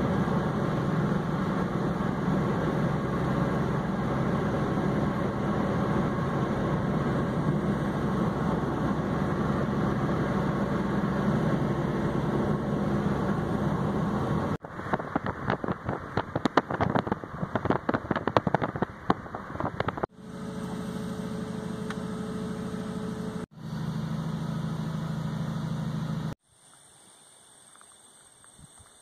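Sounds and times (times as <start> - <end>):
car engine and road noise: 0.0 - 26.4.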